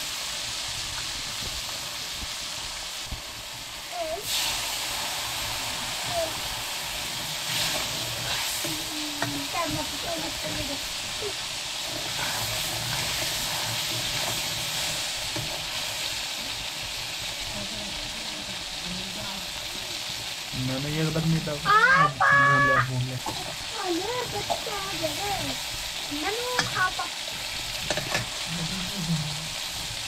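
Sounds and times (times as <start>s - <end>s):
oil and spices sizzling: 0.0s - 30.0s
metal ladle stirring in pan: 7.0s - 16.3s.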